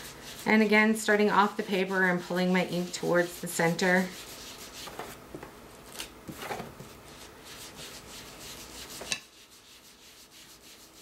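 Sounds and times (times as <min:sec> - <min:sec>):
foam pad swishing on paper: 0:01.3 - 0:05.2.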